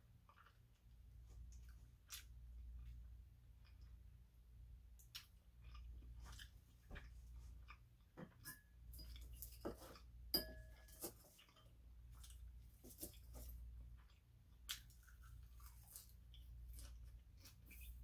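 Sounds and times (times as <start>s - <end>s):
chewing and crunching: 0.0s - 4.3s, 5.0s - 18.0s
fork clinking on ceramic bowl: 8.4s - 9.6s, 10.3s - 11.1s.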